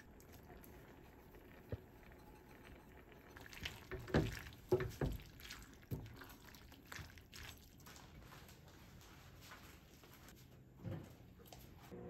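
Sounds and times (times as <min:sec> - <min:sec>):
wet squelches of stirred pasta: 0:00.0 - 0:12.0.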